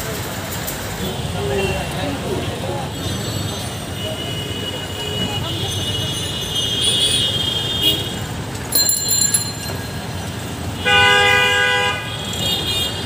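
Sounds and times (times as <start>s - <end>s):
street traffic hum: 0.0s - 13.0s
vehicle horn: 10.8s - 13.0s.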